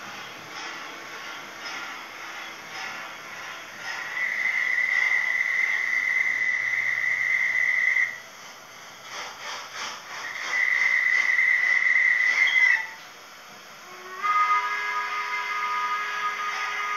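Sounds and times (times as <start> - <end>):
high steady whistle tone: 4.0 - 8.2, 10.4 - 13.1, 13.8 - 16.9.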